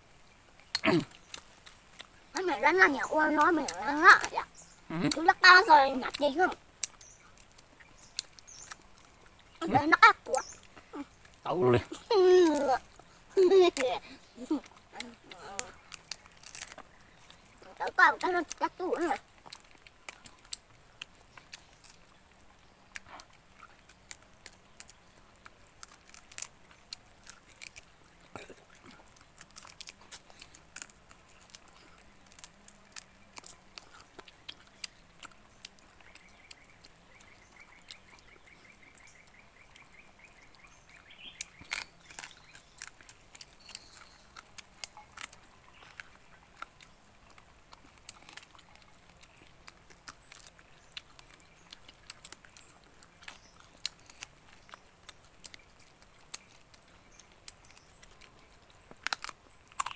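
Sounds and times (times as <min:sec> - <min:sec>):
people chewing and biting chicken: 0:00.0 - 0:59.9
meat tearing from bone: 0:12.0 - 0:22.2, 0:22.9 - 0:59.9.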